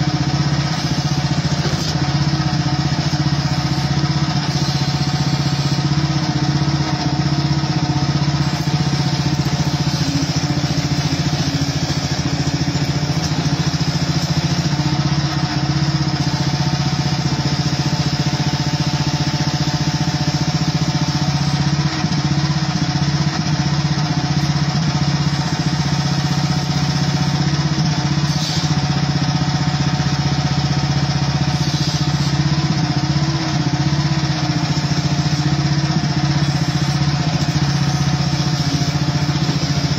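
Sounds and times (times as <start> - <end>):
excavator engine running under load: 0.0 - 39.9.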